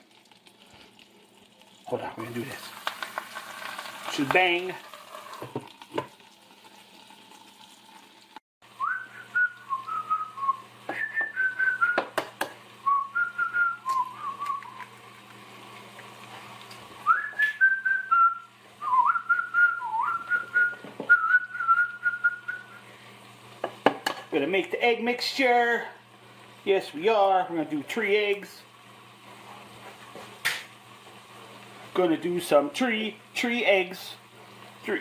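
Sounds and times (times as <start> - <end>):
food sizzling in a skillet: 0.0 - 11.2, 13.8 - 17.6, 22.6 - 35.0
person whistling a tune: 8.8 - 12.1, 12.8 - 14.8, 17.0 - 22.8.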